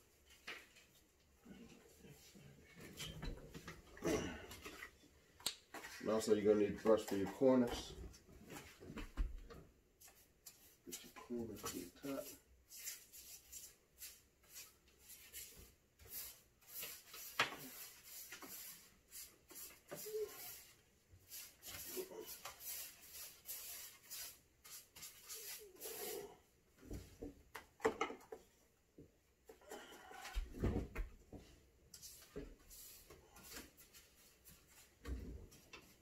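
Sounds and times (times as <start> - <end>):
paintbrush swishing on wood: 10.0 - 26.3.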